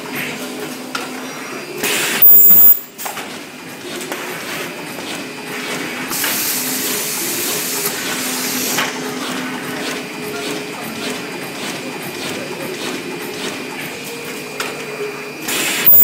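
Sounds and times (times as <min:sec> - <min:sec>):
machine humming: 0:01.2 - 0:03.0, 0:06.5 - 0:16.0
brief high-pitched burst: 0:02.2 - 0:02.9
hiss: 0:06.1 - 0:08.9.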